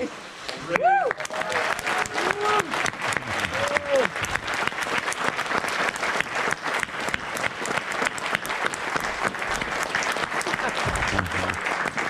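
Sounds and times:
crowd clapping: 0.7s - 12.0s.

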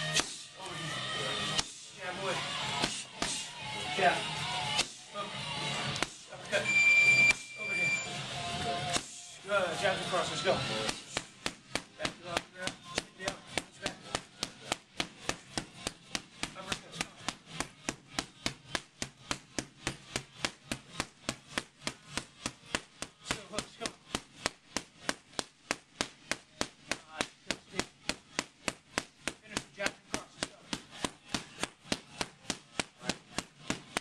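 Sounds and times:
boxing gloves striking mitts: 0.0s - 0.4s, 2.7s - 3.5s, 8.6s - 34.0s.

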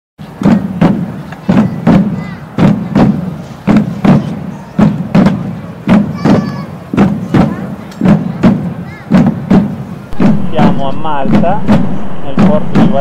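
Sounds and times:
paired low thumps: 7.0s - 13.0s.

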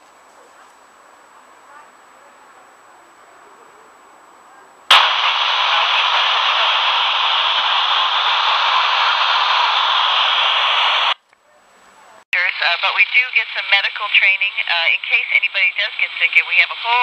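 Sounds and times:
radio static hiss: 4.9s - 11.2s, 12.4s - 17.0s
radio switch click: 4.9s - 11.2s.

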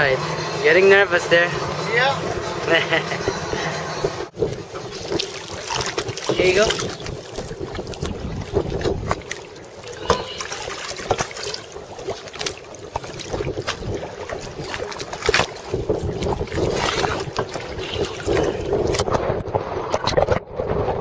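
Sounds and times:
seawater sloshing and splashing: 4.2s - 20.9s.

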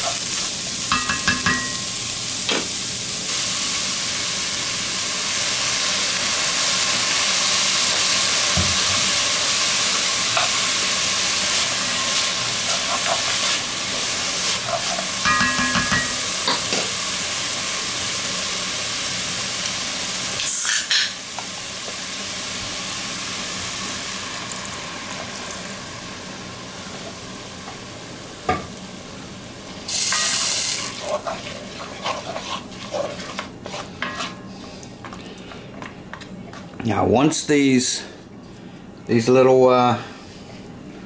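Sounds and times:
onions sizzling in a pot: 0.0s - 34.7s.

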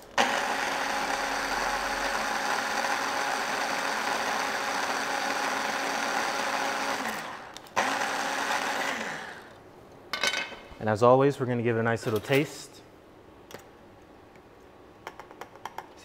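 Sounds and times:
electric food chopper motor: 0.1s - 9.6s.

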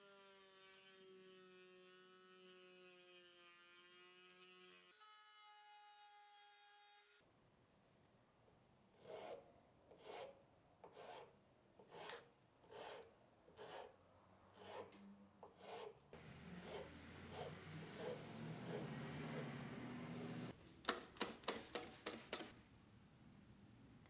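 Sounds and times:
hand file rasping: 9.0s - 13.9s, 14.6s - 16.0s, 16.6s - 19.8s.

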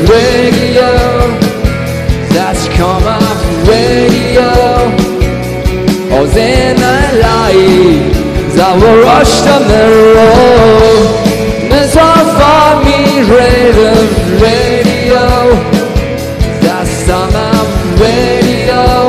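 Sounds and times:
man singing: 0.0s - 5.4s, 6.0s - 19.0s
electric guitar: 0.0s - 19.0s
steady drum beat: 0.0s - 19.0s.

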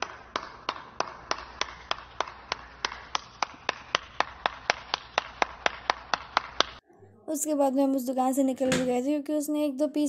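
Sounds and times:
person clapping hands: 0.0s - 6.8s.

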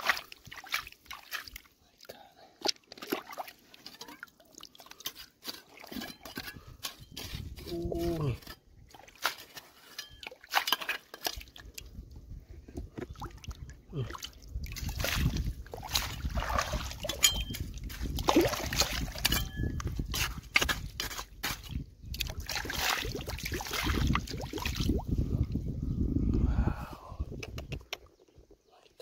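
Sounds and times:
water sloshing and splashing: 0.0s - 6.5s, 8.4s - 12.0s, 12.6s - 25.2s.

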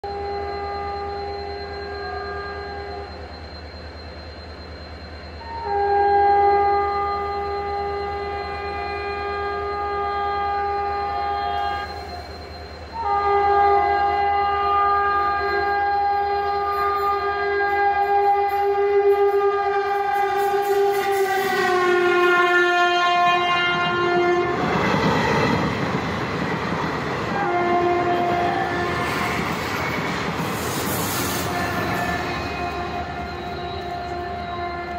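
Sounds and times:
train wheels rumbling on rail: 0.0s - 34.9s
locomotive horn blast: 5.4s - 12.1s, 12.9s - 24.9s, 27.3s - 29.6s, 30.5s - 34.9s.

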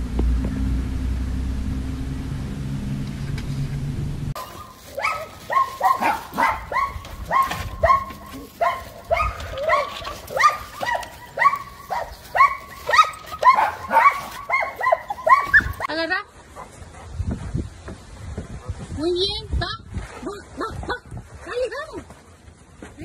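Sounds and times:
dog barking: 4.4s - 15.9s.

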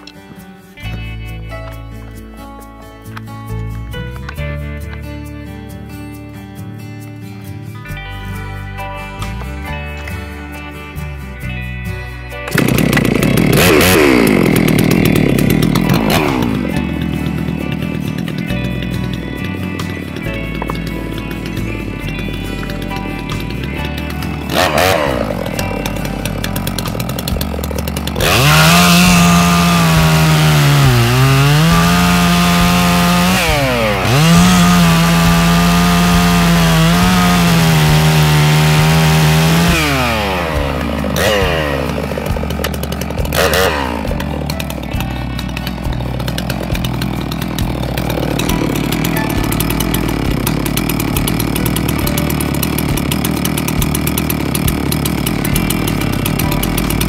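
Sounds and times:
chainsaw cutting log: 12.4s - 57.0s.

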